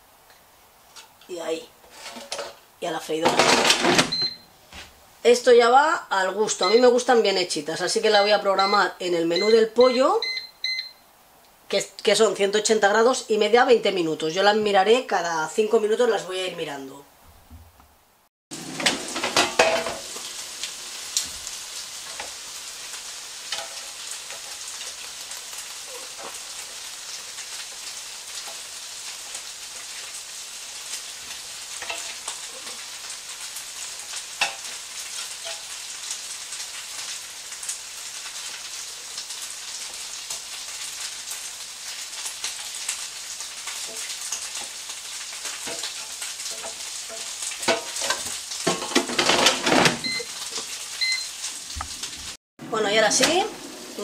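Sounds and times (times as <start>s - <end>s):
skewers sizzling in air fryer: 18.5s - 54.0s.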